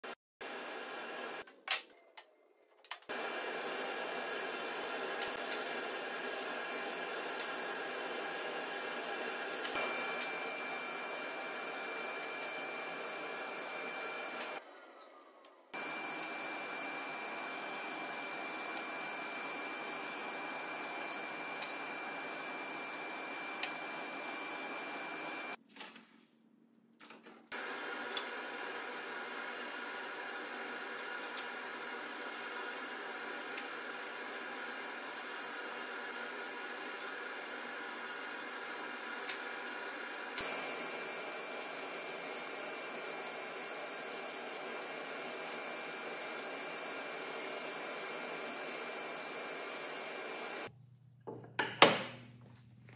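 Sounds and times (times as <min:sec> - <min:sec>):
table saw running: 0:03.1 - 0:15.0, 0:15.7 - 0:25.6, 0:27.5 - 0:50.7.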